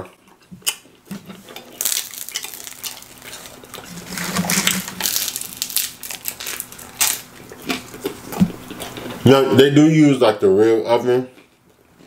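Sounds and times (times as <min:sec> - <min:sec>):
crunchy chewing: 0:00.0 - 0:09.3
pizza crust tearing: 0:00.7 - 0:09.2.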